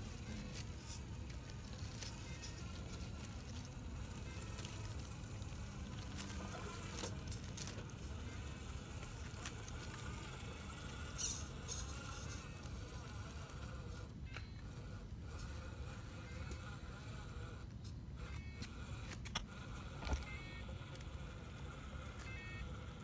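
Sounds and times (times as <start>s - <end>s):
toy truck motor whine: 0.0s - 23.0s.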